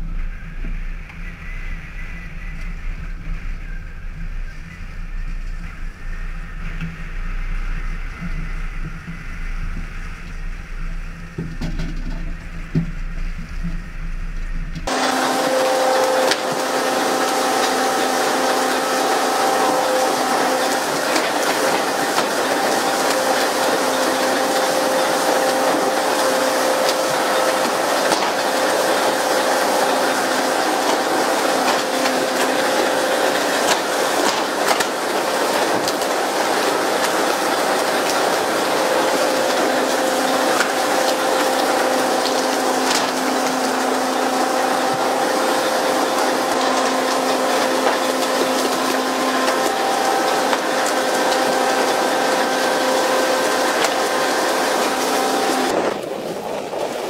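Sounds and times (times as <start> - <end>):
wind: 0.0 - 15.4, 51.9 - 57.0
boat engine humming: 0.0 - 57.0
pump mechanical hum: 0.0 - 57.0
sea noise: 0.0 - 57.0
rush of water spray: 14.9 - 57.0.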